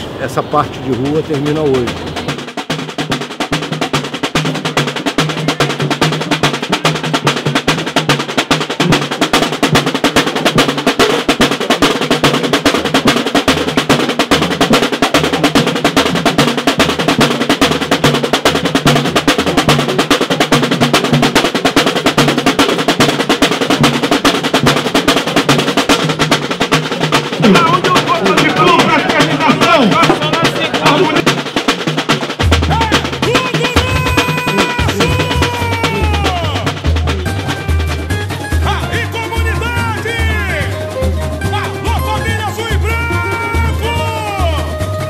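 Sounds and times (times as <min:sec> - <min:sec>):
snare drums: 0:00.0 - 0:45.0
deep bass drums: 0:22.0 - 0:45.0.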